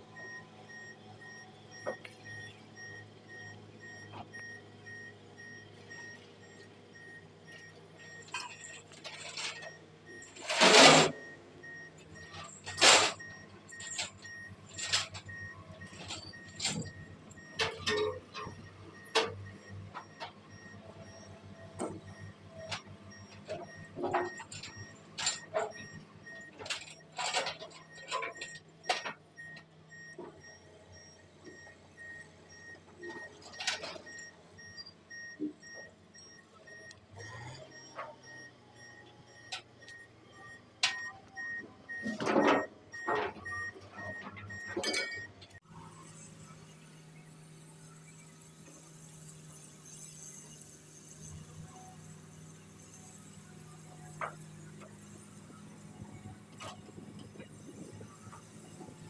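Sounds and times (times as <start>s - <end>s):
diesel engine running: 0.0s - 59.0s
sharp metal clanks and knocks: 42.0s - 45.5s.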